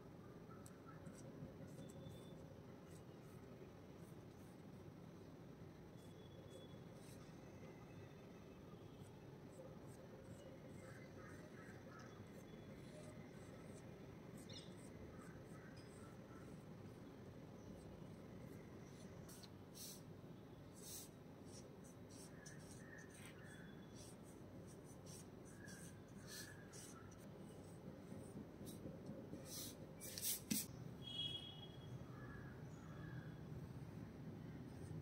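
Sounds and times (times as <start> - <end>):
pencil scratching on paper: 20.7 - 28.8.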